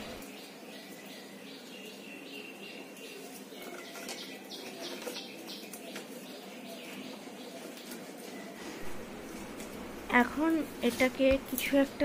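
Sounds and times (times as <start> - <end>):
small birds chirping: 0.0 - 8.8.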